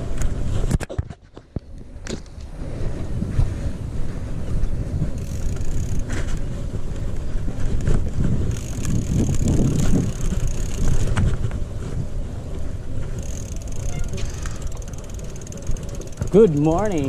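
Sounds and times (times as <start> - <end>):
bike rattling: 0.0 - 17.0
wind buffeting microphone: 0.0 - 17.0
tyres rumbling on dirt: 5.1 - 17.0.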